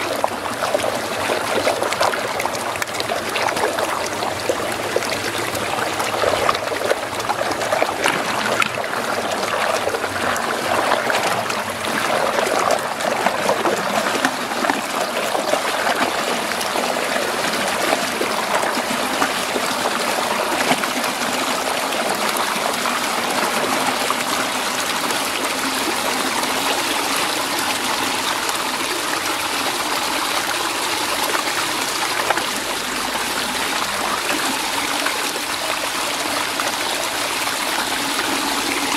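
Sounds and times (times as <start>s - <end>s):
water swirling down drain: 0.0s - 38.9s.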